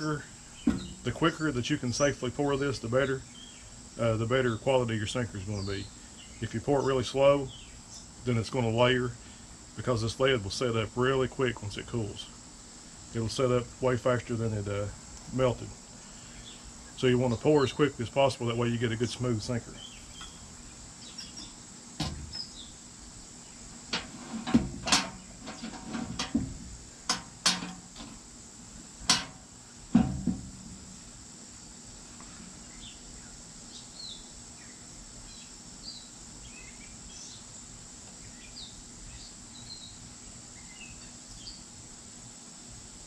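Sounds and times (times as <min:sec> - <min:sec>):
high insect buzz: 0:00.0 - 0:43.0
bird chirps: 0:19.7 - 0:21.6, 0:22.3 - 0:22.8.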